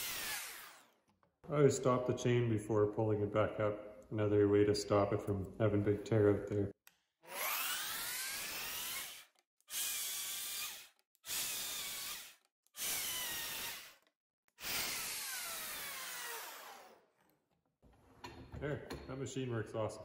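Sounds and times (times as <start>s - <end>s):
chain mortiser cutting wood: 0.0s - 1.3s, 7.2s - 17.0s.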